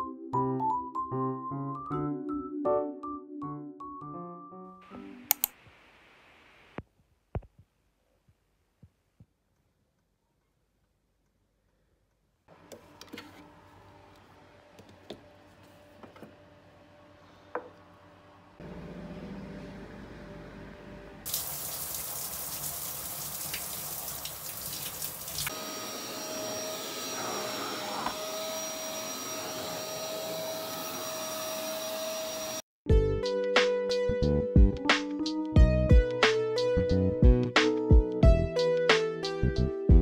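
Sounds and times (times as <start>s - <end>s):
low appliance hum: 12.5s - 21.4s
shower head spraying water: 21.3s - 25.6s.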